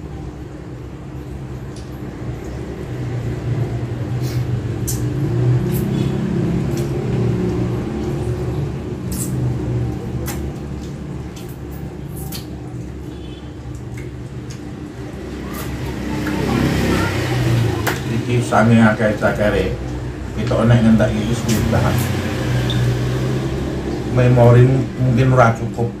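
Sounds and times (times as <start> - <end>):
chewing and sucking smacks: 4.8 - 14.7.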